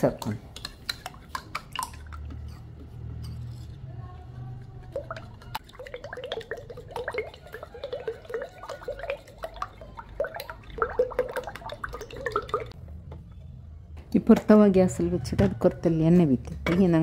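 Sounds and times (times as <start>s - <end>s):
eggs beaten with spoon: 0.0s - 12.8s.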